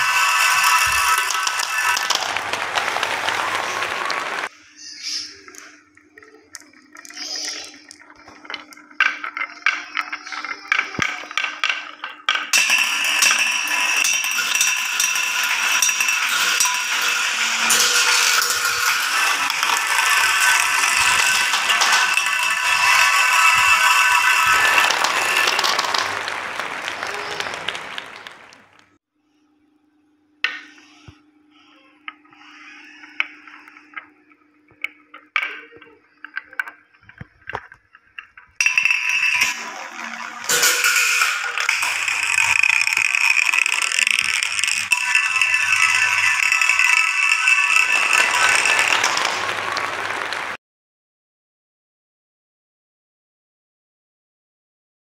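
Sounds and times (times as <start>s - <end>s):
marbles clicking on wooden track: 0.0s - 4.5s, 6.6s - 28.8s, 34.8s - 50.6s.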